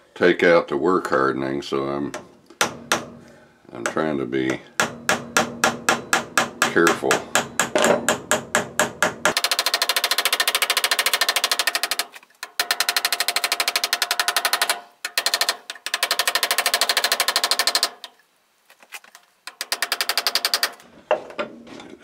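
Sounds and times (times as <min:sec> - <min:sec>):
small hammer tapping on brass: 0:02.2 - 0:09.4.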